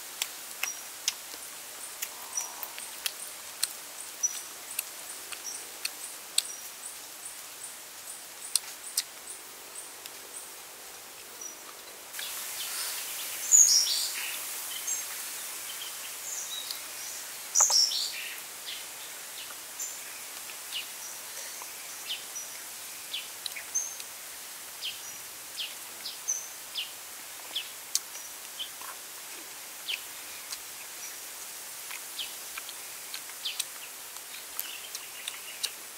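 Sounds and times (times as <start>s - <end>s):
outdoor background hiss: 0.0s - 35.9s
man eating with clicks and smacks: 0.2s - 6.8s, 8.4s - 9.2s, 20.3s - 20.6s, 27.4s - 30.8s, 31.8s - 35.9s
birds chirping: 1.8s - 10.6s, 11.3s - 24.1s.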